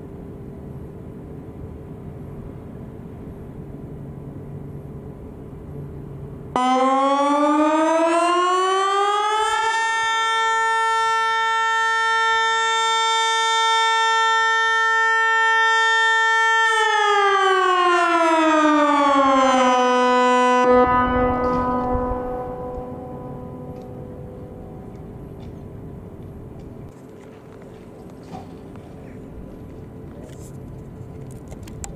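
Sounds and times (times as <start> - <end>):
electronic siren tone: 6.6 - 25.0.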